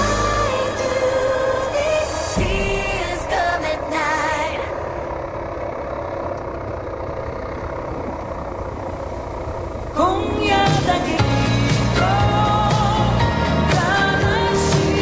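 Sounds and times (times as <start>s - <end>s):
pop song with singing: 0.0s - 5.1s, 9.9s - 15.0s
vehicle engine running: 0.0s - 15.0s.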